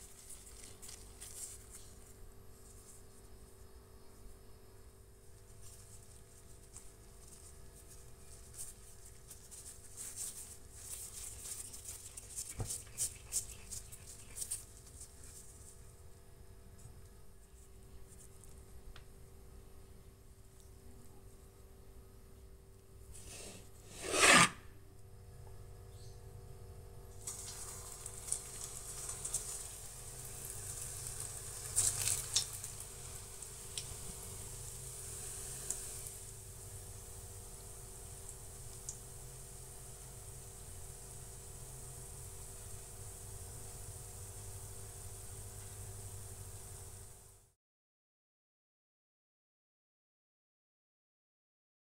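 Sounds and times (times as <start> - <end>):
dough rustling in flour: 0.0 - 18.9, 27.2 - 47.4
oil pops and crackles: 27.2 - 34.0.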